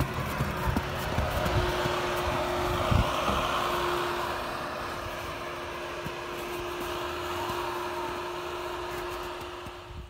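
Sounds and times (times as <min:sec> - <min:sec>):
low buffeting thumps: 0:00.0 - 0:07.0
broad rushing noise: 0:00.0 - 0:10.0
diesel engine humming: 0:00.0 - 0:10.0.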